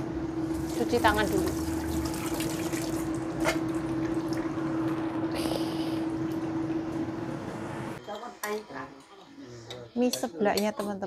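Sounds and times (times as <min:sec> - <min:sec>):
steady hum: 0:00.0 - 0:08.0
tap water running over hands: 0:00.7 - 0:04.6.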